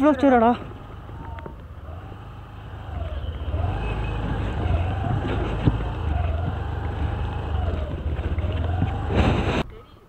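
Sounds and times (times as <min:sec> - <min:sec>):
scooter engine running: 0:00.2 - 0:09.4
wind rumble on microphone: 0:04.2 - 0:09.7.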